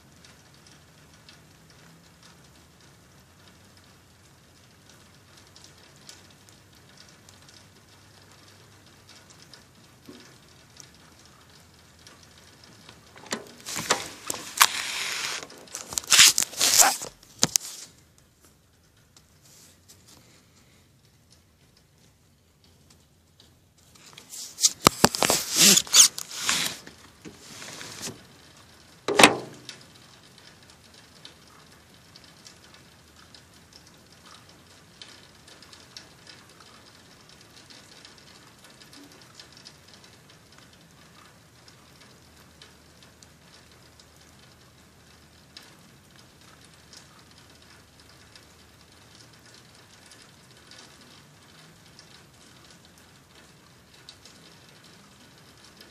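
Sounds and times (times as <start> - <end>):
faint patter of rain: 0.0 - 55.9
scraping against phone microphone: 13.6 - 17.9, 24.2 - 28.2.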